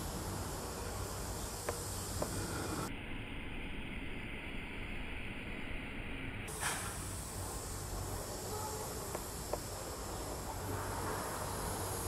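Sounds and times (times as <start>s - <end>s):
low hum: 0.0s - 12.0s
outdoor background hiss: 0.0s - 12.0s
short scrape: 6.5s - 7.1s.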